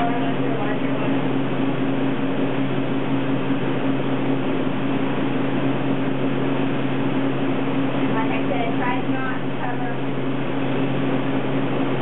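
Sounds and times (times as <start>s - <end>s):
electric machine hum: 0.0s - 12.0s.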